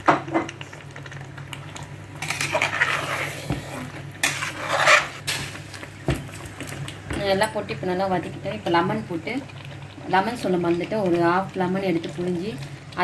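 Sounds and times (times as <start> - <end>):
spoon scraping cooking pot: 2.2 - 5.2.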